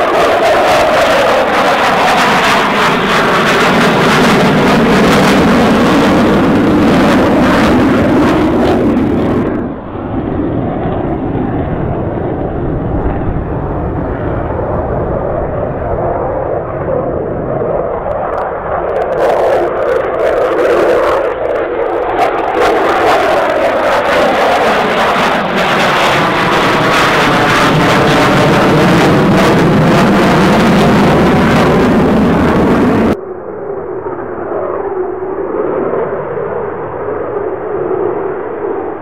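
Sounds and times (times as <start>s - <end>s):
dull steady jet noise: 0.0s - 39.0s
jet flying by: 0.0s - 39.0s.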